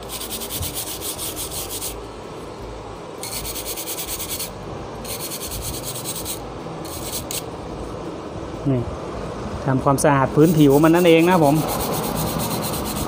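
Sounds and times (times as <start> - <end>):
brush scrubbing circuit board: 0.0 - 2.0, 3.2 - 4.5, 5.1 - 7.4, 10.4 - 13.0.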